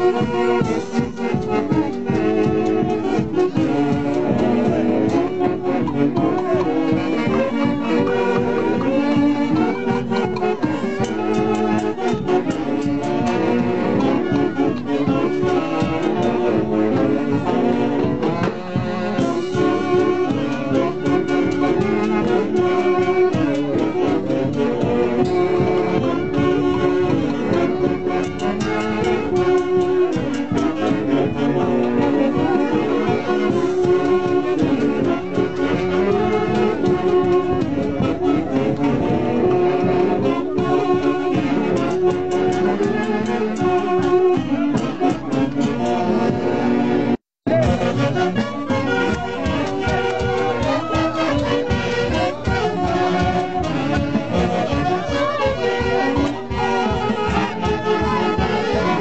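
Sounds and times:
orchestra playing dance music: 0.0 - 59.0
steady beat: 0.0 - 59.0.

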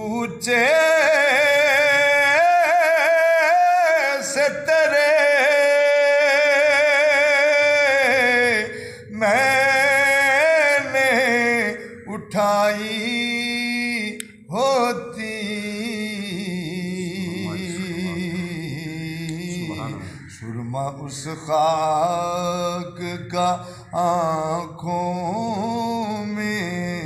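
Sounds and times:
man singing unaccompanied: 0.0 - 27.0
singer breathing: 8.7 - 9.1, 20.0 - 20.4, 23.6 - 24.0.

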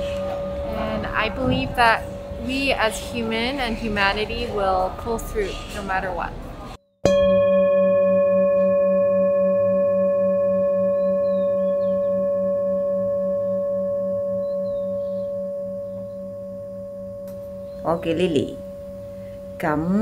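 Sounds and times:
struck metal bell ringing: 0.0 - 4.6, 7.0 - 20.0.

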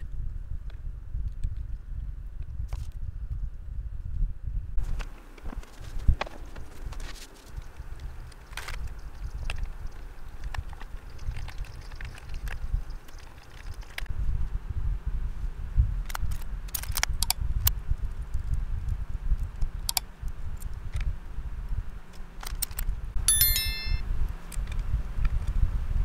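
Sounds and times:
bright bell chime: 23.2 - 24.0.

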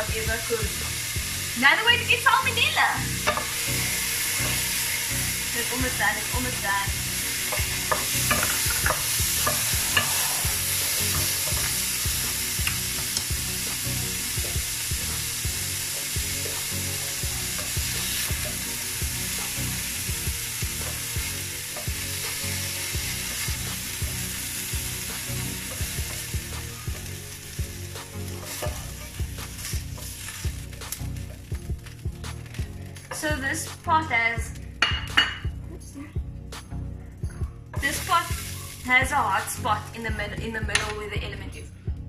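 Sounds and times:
chicken sizzling in oil: 0.0 - 33.8, 37.8 - 39.9
spoon stirring: 7.3 - 11.8.

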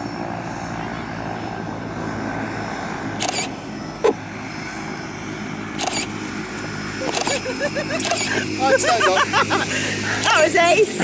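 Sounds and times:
distant propeller aircraft engine drone: 0.0 - 11.0
sharp click: 3.2 - 3.5.

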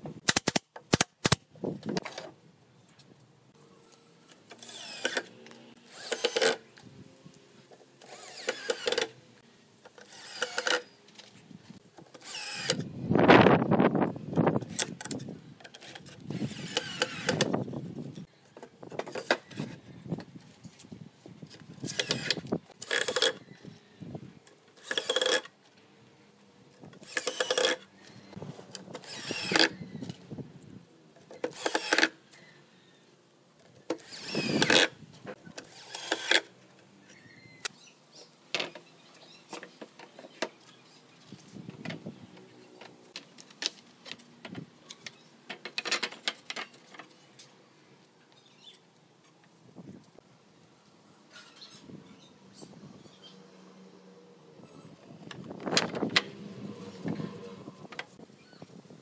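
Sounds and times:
cordless drill driving screws: 4.3 - 6.6, 8.0 - 9.2, 10.0 - 11.0, 12.2 - 12.9, 14.6 - 17.6, 21.8 - 23.5, 24.8 - 25.5, 27.0 - 27.8, 29.0 - 29.8, 31.4 - 32.2, 33.9 - 34.9, 35.6 - 36.5.

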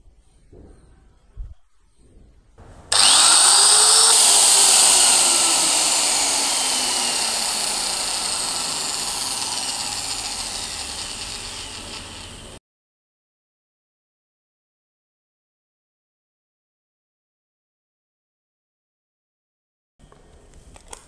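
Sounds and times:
sheet metal shear motor whining: 2.6 - 12.6.

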